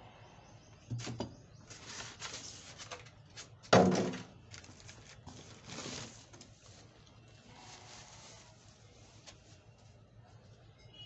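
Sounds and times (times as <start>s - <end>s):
bubble wrap rustling and crinkling: 1.7s - 3.6s, 4.4s - 10.0s.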